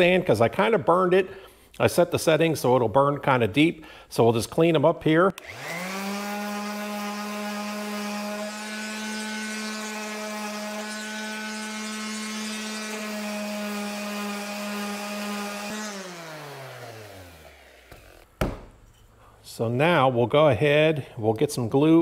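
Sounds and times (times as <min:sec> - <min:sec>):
orbital sander on wood: 0:05.4 - 0:18.3.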